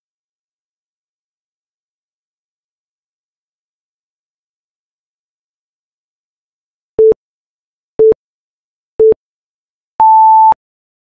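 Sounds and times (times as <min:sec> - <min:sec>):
countdown timer beeps: 0:10.0 - 0:10.6.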